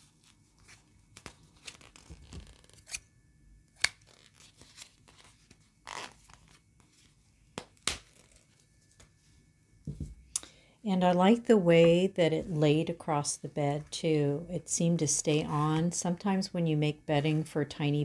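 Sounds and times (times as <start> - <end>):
paper crinkling: 0.0 - 3.0, 3.8 - 7.2.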